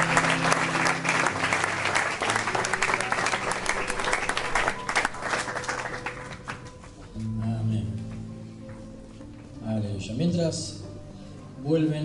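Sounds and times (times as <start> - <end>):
congregation applauding: 0.0 - 7.2.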